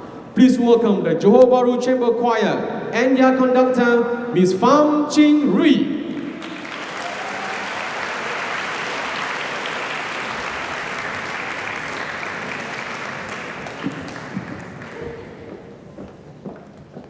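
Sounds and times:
audience applauding: 6.1 - 15.6.

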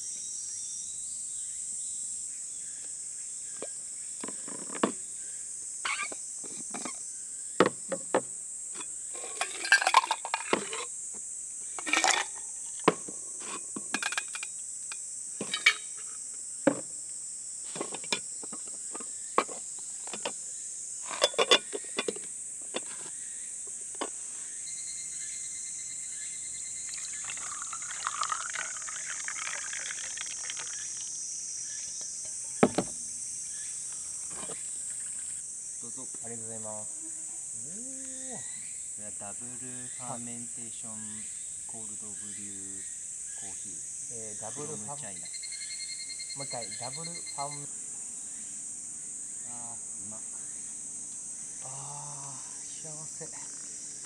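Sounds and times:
insects droning: 0.0 - 54.0
ice cubes clinking in metal cup: 9.2 - 10.9, 11.8 - 12.4, 26.9 - 30.8.

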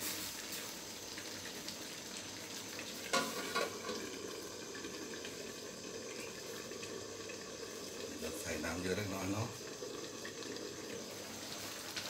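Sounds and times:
food sizzling in a wok: 0.0 - 12.0
metal lid clanking on pan: 3.1 - 4.0.

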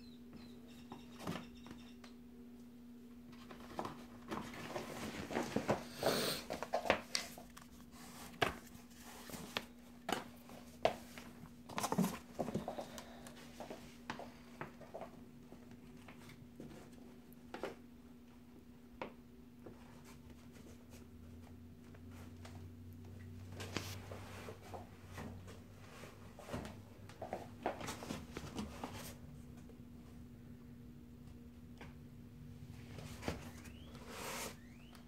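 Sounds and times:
rustling through fabric caddy: 3.3 - 12.9.

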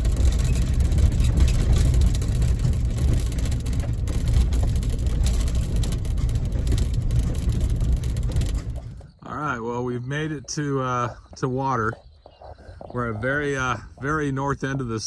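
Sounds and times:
truck knocks and rattles: 0.0 - 9.2
engine and tyres rumbling: 0.0 - 15.0.

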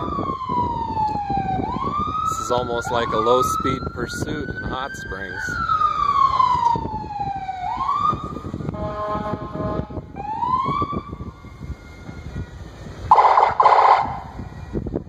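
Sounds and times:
police siren whooping: 0.0 - 15.0
vehicle horn blasts: 8.7 - 10.0.

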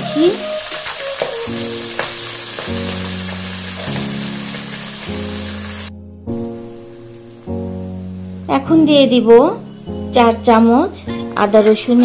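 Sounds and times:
background music with held notes: 0.0 - 12.0
onions sizzling in hot oil: 0.0 - 12.0.

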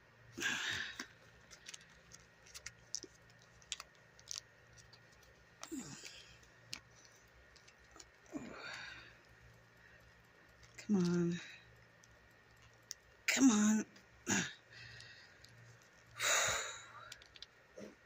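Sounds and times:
faint clicks and rubbing: 1.0 - 13.3, 14.8 - 16.2, 17.0 - 17.7
strained vocal effort sounds: 5.6 - 6.7, 7.9 - 10.0.

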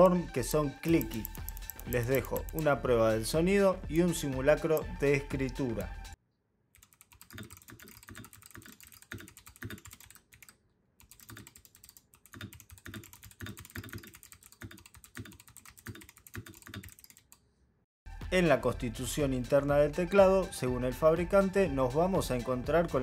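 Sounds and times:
mechanical keyboard typing: 0.9 - 2.7, 6.8 - 17.4.

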